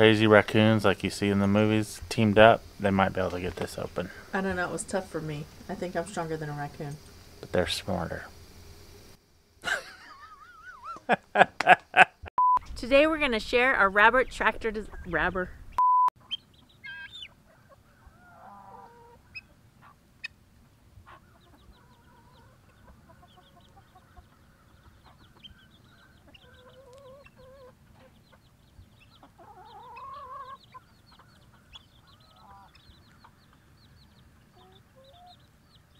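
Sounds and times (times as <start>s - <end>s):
chickens clucking: 16.2s - 35.9s
faint high chirping: 21.1s - 35.9s.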